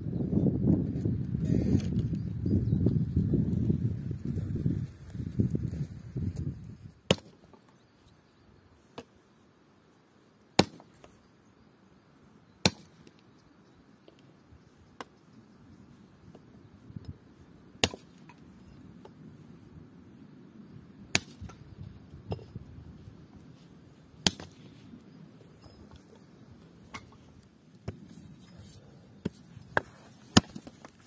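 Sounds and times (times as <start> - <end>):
hatchet chopping branches: 7.1 - 7.6, 10.6 - 11.1, 12.6 - 13.1, 17.8 - 18.3, 21.1 - 21.6, 24.2 - 24.7, 29.2 - 31.0.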